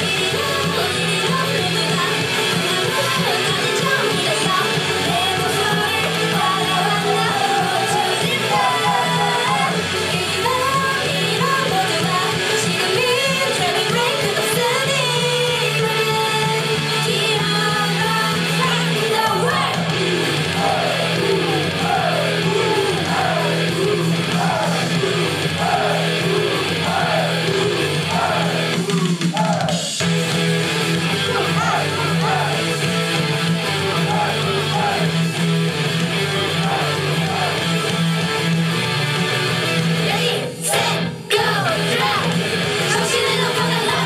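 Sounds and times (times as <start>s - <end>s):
woman singing into microphone: 0.0s - 20.0s, 40.0s - 44.0s
loud amplified music: 0.0s - 44.0s.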